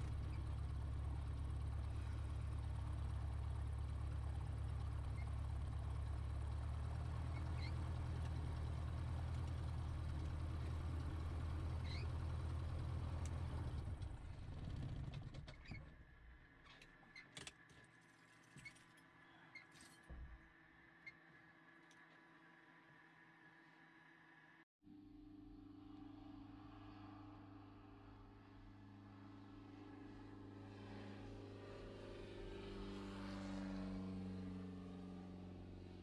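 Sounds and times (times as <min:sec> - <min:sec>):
aircraft piston engine idling: 0:00.0 - 0:15.0.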